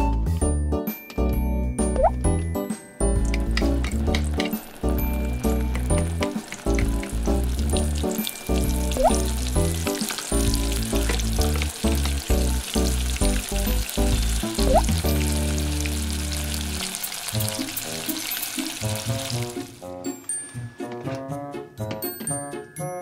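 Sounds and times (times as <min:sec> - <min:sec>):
food sizzling in frying pan: 0:03.2 - 0:19.8.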